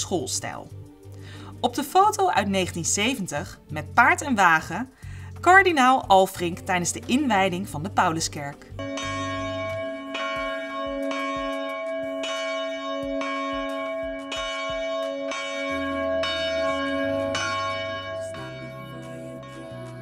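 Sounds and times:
church bells ringing: 8.8s - 20.0s.

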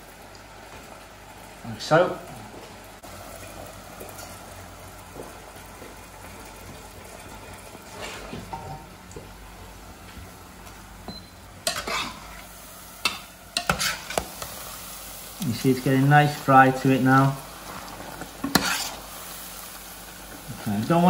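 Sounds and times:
food deep-frying in oil: 0.0s - 21.0s
metal utensils clinking on pans: 11.6s - 12.3s, 13.0s - 14.3s.

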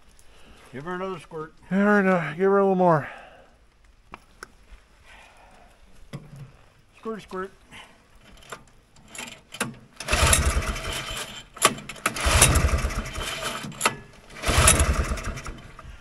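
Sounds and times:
starter rope rewinding click: 8.2s - 15.6s
engine cranking with recoil starter: 8.2s - 16.0s.

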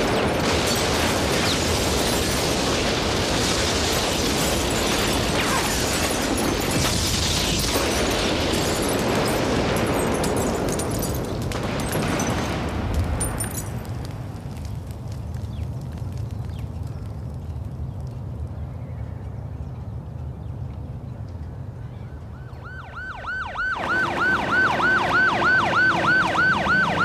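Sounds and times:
debris crackling and clattering: 0.0s - 18.4s.

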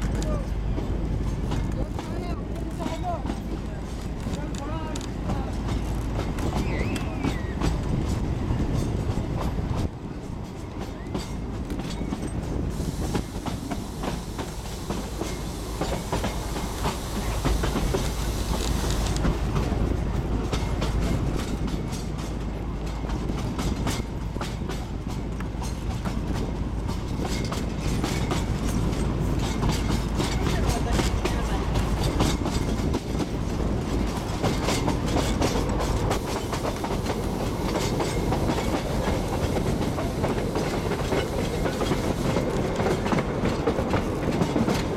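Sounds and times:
train rumbling: 0.0s - 44.9s
hiss: 12.6s - 19.5s, 35.9s - 43.1s
wheels clacking over rails: 13.2s - 44.9s.

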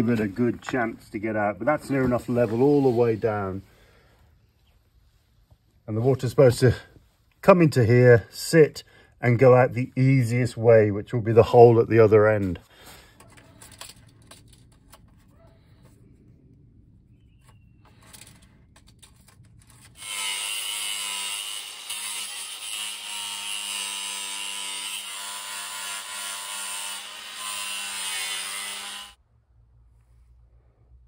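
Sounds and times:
circular saw cutting plastic pipe: 19.9s - 29.2s.

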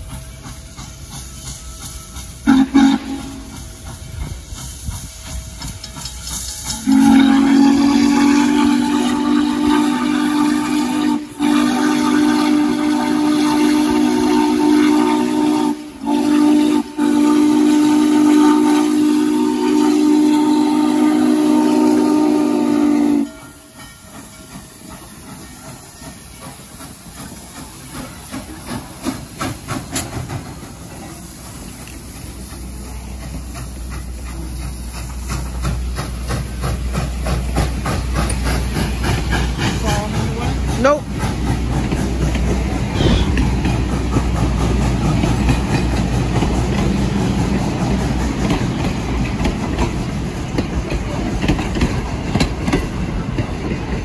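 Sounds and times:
steam hiss: 0.0s - 54.0s
steam locomotive whistle: 1.2s - 3.9s, 6.2s - 26.7s, 42.9s - 43.6s.

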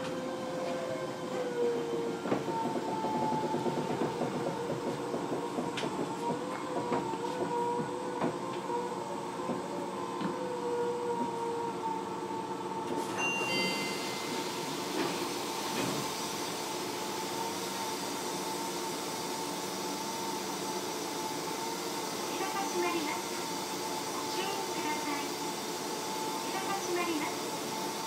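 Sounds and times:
train wheels rumbling on rails: 0.0s - 8.8s, 13.8s - 28.0s
train whining tones: 0.0s - 28.0s
hiss: 14.1s - 28.0s.

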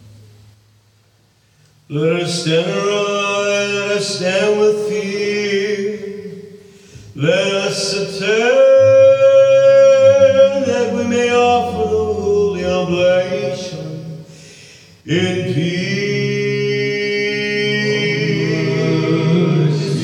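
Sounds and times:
man chanting: 1.9s - 14.3s, 15.0s - 20.0s
low steady note: 8.6s - 14.3s.

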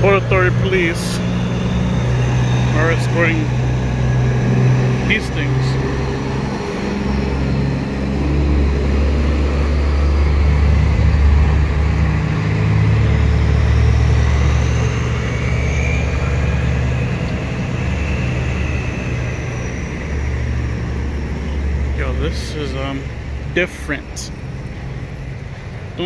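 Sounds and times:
faint high whine: 0.0s - 26.0s
truck engines rumbling past: 0.0s - 26.0s.

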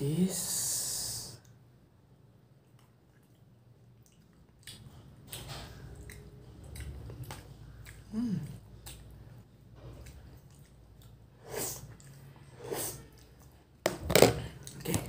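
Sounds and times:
person chewing food: 2.5s - 15.0s
person humming: 8.1s - 8.6s.

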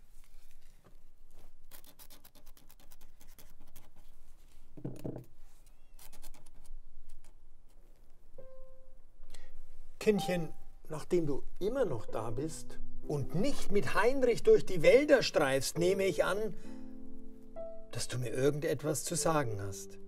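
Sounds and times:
quill pen scratching paper: 1.6s - 4.2s, 5.9s - 7.4s
quiet background music: 8.2s - 20.0s.

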